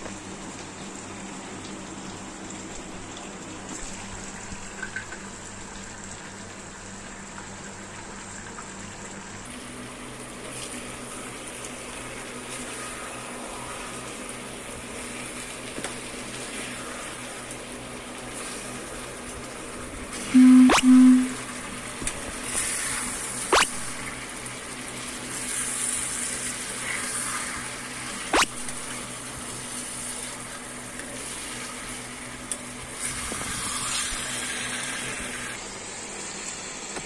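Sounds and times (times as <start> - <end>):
food sizzling in oil: 9.2 - 36.9
loud low tone: 20.4 - 21.4.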